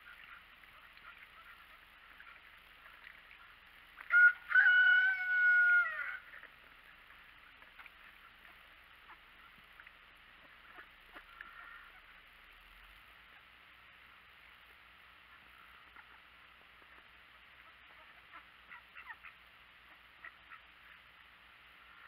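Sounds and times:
rooster crowing: 4.1 - 6.3.

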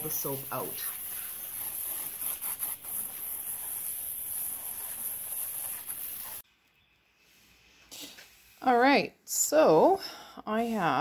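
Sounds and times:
hose nozzle spraying water: 0.0 - 6.4.

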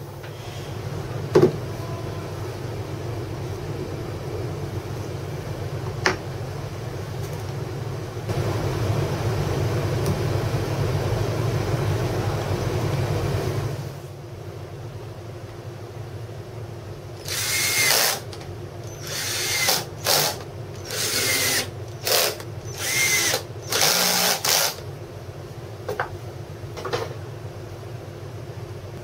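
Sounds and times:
steady mechanical hum: 0.0 - 29.0.

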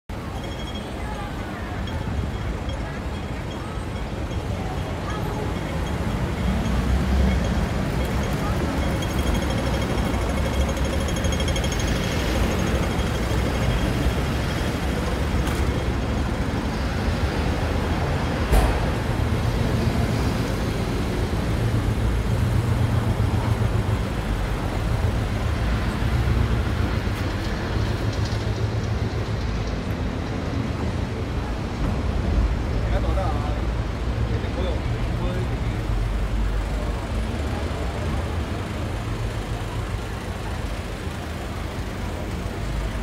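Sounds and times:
crossing signal ticking rapidly: 0.1 - 16.4
vehicle engines passing: 0.1 - 43.0.

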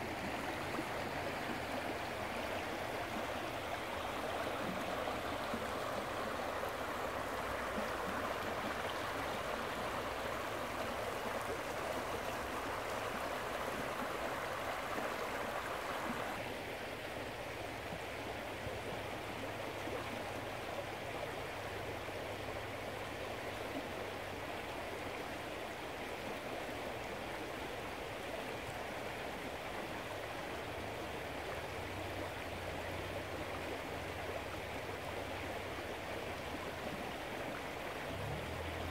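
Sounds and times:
creek water rushing over rocks: 0.0 - 38.9.

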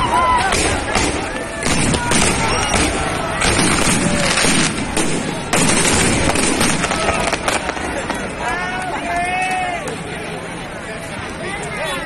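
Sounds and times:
fireworks bangs and crackles: 0.0 - 8.5
people's voices: 0.0 - 12.0.

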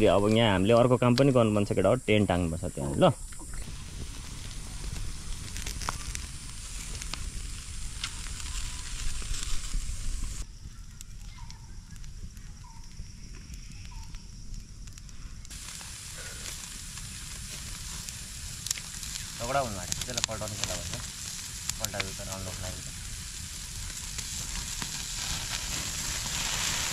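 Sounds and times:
fire crackling: 0.0 - 26.9
food sizzling: 3.1 - 10.5, 15.5 - 26.9.

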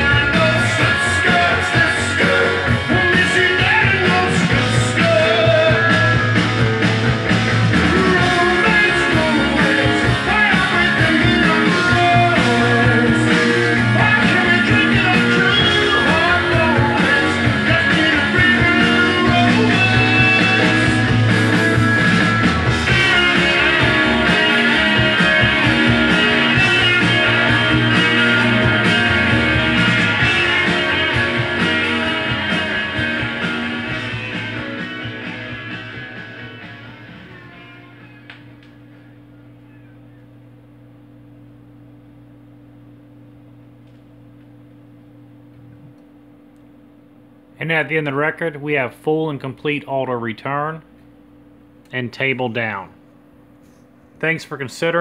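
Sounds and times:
rock song with electric guitar: 0.0 - 41.0.

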